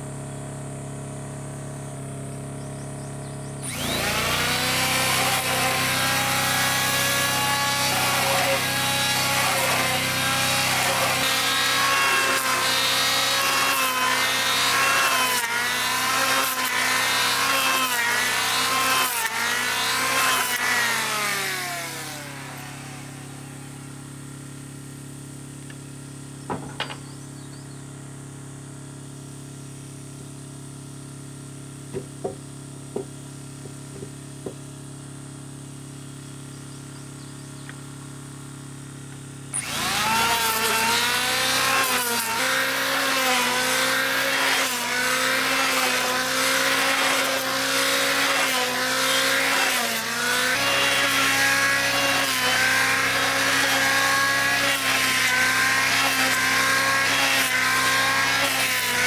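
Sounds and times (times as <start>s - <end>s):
low machine hum: 0.0s - 4.3s
electric planer shaving wood: 0.0s - 26.9s, 37.6s - 59.0s
timber knocking: 31.9s - 34.6s.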